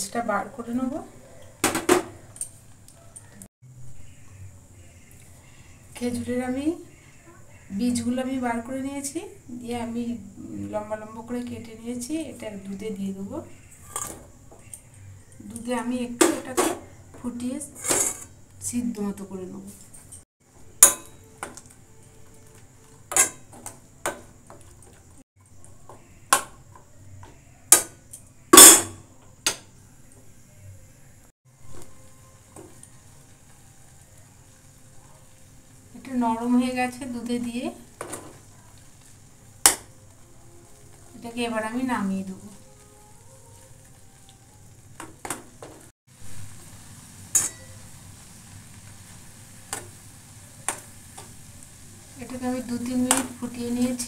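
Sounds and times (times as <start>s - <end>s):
low hiss of simmering pan: 3.6s - 54.0s
metal spoon scraping a pan: 13.7s - 15.0s, 17.6s - 18.4s, 27.7s - 29.7s, 47.3s - 47.9s
metal spoon clinking on pan: 20.8s - 21.6s, 23.1s - 24.2s, 47.3s - 47.9s.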